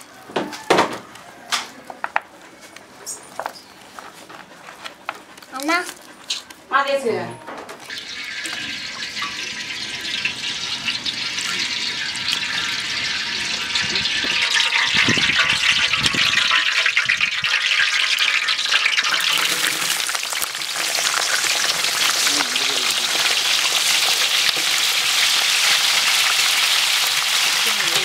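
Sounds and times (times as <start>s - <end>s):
oil sizzling in a pot: 7.8s - 28.0s
oil pouring into a pot: 7.9s - 27.6s.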